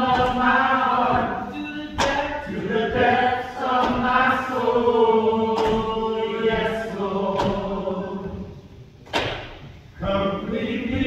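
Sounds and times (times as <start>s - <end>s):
sharp percussive hits: 0.0s - 4.4s, 5.5s - 6.7s
church choir singing: 0.0s - 8.7s, 10.0s - 11.0s.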